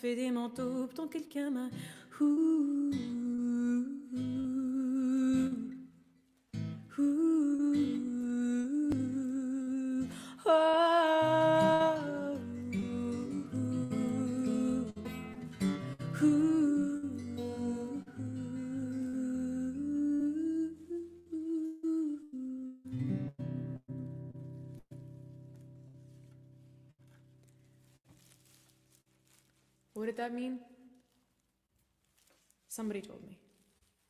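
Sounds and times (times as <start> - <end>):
woman humming a melody: 2.2 - 5.8, 6.9 - 15.2, 16.1 - 23.2
strummed acoustic guitar: 11.2 - 19.6, 22.9 - 27.6.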